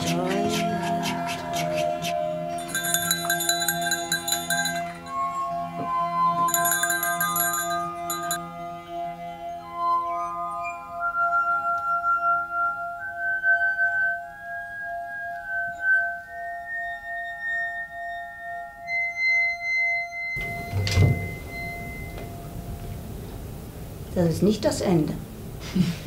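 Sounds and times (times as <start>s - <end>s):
glass-like ringing tones music: 2.5s - 8.5s, 15.7s - 22.7s.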